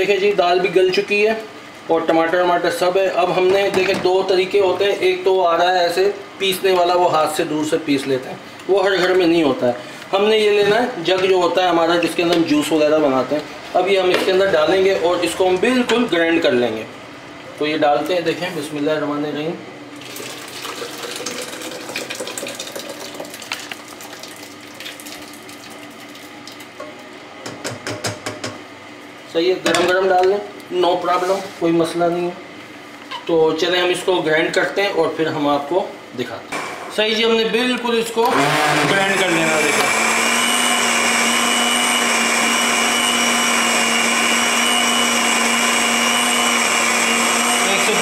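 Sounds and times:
blender motor whirring: 38.2s - 48.0s.

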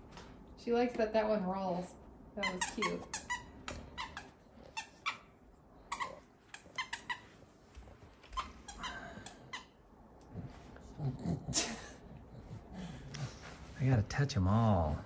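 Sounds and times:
squeaky toy squeaks: 2.4s - 5.3s, 5.9s - 7.3s
soft rustles: 6.3s - 8.8s, 12.4s - 15.0s.

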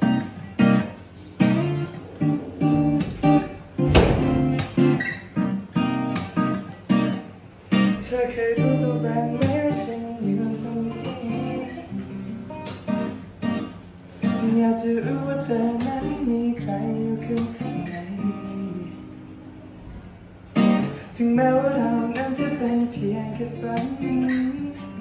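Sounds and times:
acoustic guitar chords: 0.0s - 25.0s
loud low thump: 2.0s - 4.8s.

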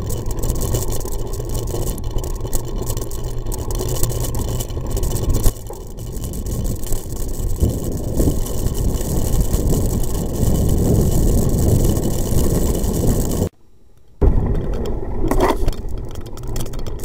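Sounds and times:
vehicle rumble on gravel track: 0.0s - 13.5s, 14.2s - 17.0s
wind buffeting microphone: 5.1s - 13.5s.

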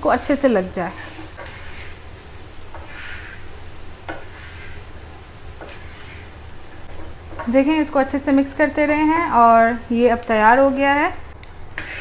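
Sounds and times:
chickpeas sizzling in oil: 0.0s - 12.0s
spatula scraping pan: 0.7s - 10.0s, 11.7s - 12.0s.

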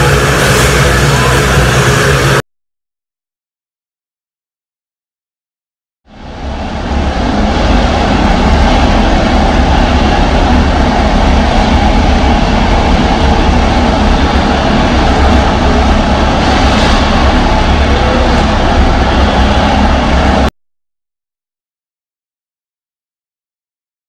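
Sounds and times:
motorcycle engines droning: 6.9s - 20.5s.

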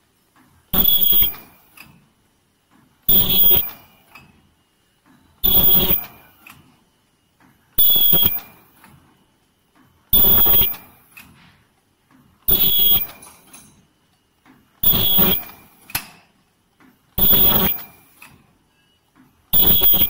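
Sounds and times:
machine hissing with shrill tone: 0.8s - 1.4s, 3.1s - 3.8s, 5.4s - 6.1s, 7.8s - 8.5s, 10.2s - 10.8s, 12.5s - 13.2s, 14.8s - 15.6s, 17.2s - 17.9s, 19.6s - 20.0s.

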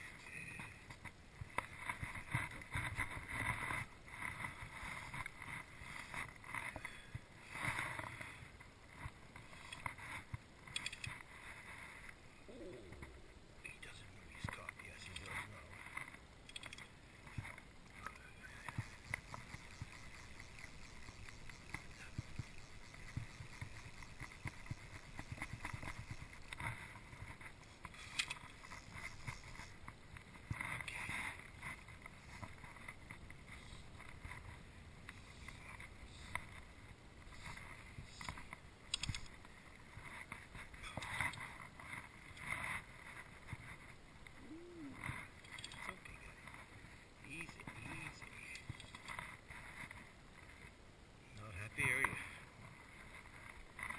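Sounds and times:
sharp clicks and knocks: 37.5s - 39.4s.

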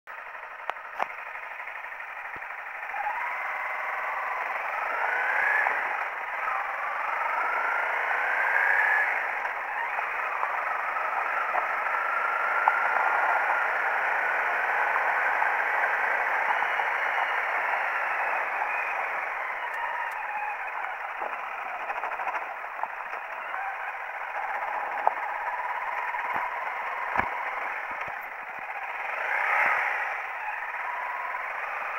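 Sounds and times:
motorcycle engine accelerating: 0.1s - 31.9s
sharp clicks: 19.6s - 23.6s.

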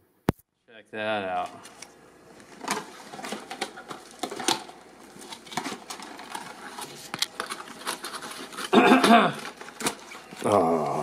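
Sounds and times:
plastic packs and boxes rustling: 1.4s - 10.6s.

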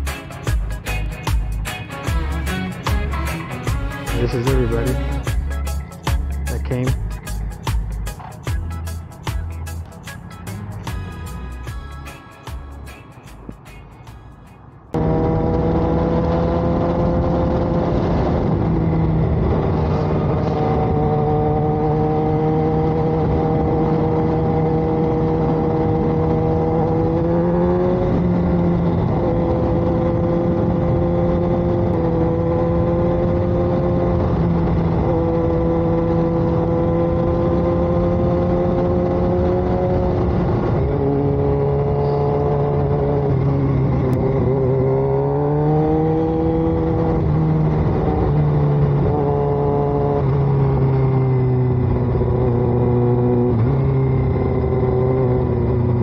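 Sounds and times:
road noise: 0.0s - 56.0s
motorcycle engine running: 14.9s - 56.0s
wind noise: 14.9s - 56.0s.

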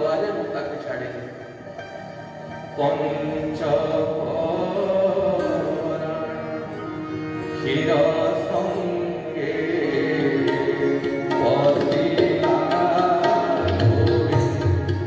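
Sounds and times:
wavering melody line: 1.3s - 3.8s
tabla rhythm: 7.3s - 15.0s.

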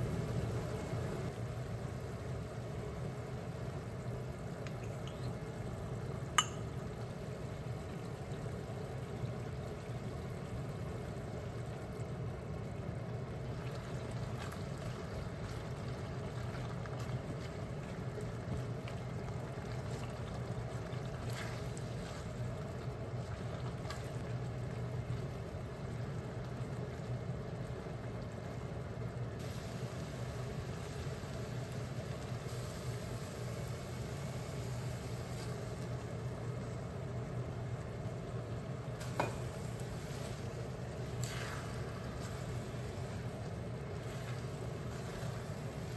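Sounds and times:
food frying in a wok: 0.0s - 45.9s
steady low hum: 0.0s - 45.9s
egg sizzling in wok: 29.4s - 36.9s, 38.9s - 45.9s.

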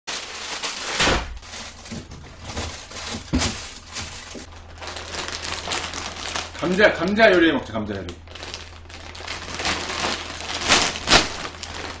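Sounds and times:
plastic bag rustling and crinkling: 0.1s - 12.0s.

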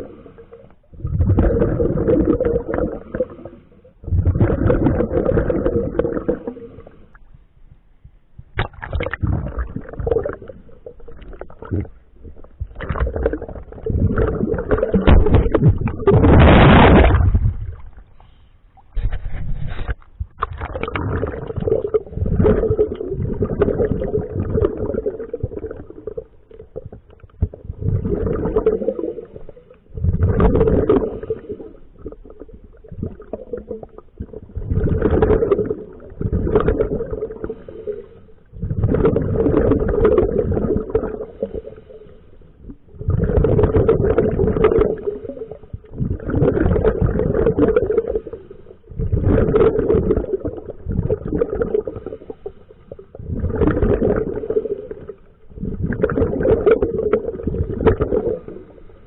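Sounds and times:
bubbles gurgling: 0.0s - 7.2s, 8.4s - 18.1s, 20.2s - 59.0s
diver breathing through regulator: 37.4s - 38.4s.

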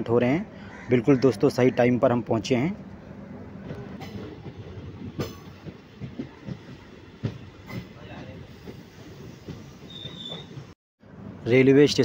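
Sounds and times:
train rumbling: 2.3s - 12.0s
wheels clacking over rail joints: 3.6s - 10.8s.

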